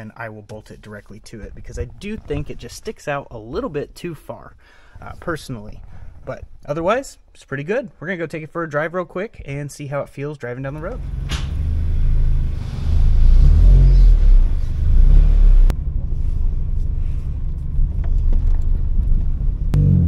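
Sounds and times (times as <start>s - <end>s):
car engine rumbling: 10.8s - 20.0s.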